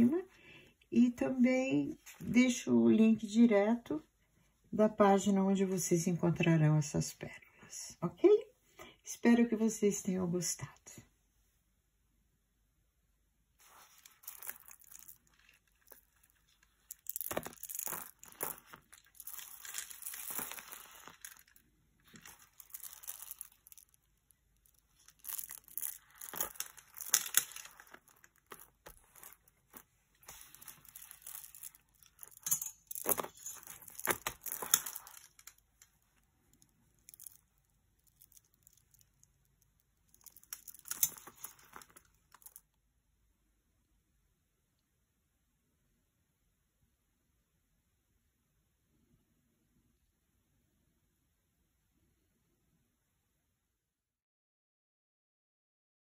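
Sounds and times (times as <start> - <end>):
pearls rustling on paper: 13.6 - 42.6
pearls clicking together: 14.0 - 42.6.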